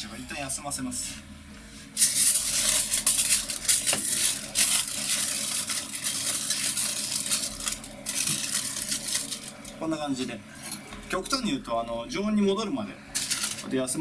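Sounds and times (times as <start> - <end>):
aluminium foil crinkling: 2.0 - 9.8, 13.1 - 13.7.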